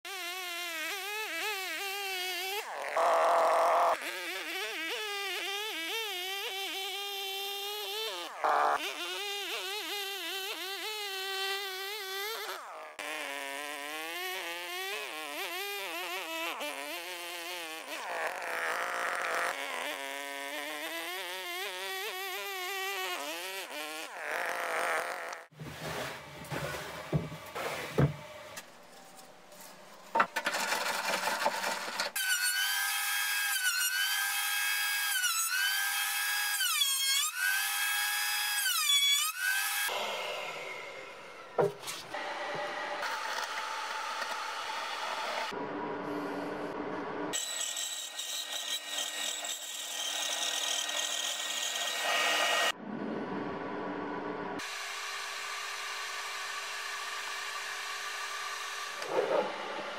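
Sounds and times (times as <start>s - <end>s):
chainsaw cutting logs: 0.1s - 28.7s, 30.2s - 45.6s, 47.3s - 52.8s, 54.6s - 59.9s
wooden knocks: 41.6s - 41.8s.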